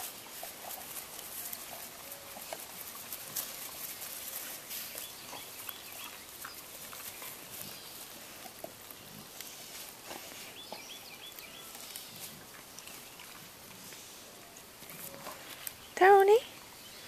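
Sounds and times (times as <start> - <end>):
dogs chewing on sticks: 0.0 - 16.1.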